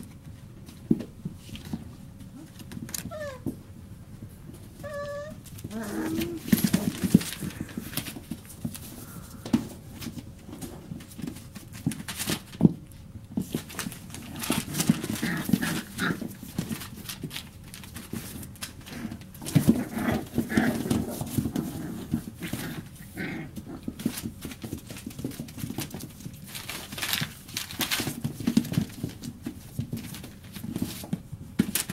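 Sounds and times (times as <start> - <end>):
puppies growling and yipping: 2.4 - 3.5, 4.8 - 8.3, 13.8 - 16.8, 18.8 - 24.6
paws scuffling on newspaper: 4.5 - 31.9.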